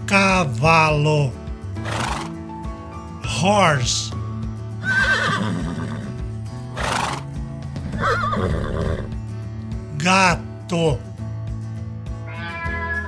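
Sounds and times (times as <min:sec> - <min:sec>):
background music: 0:00.0 - 0:13.0
horse whinnying: 0:01.8 - 0:02.4, 0:04.8 - 0:06.2, 0:06.8 - 0:09.2, 0:12.3 - 0:13.0.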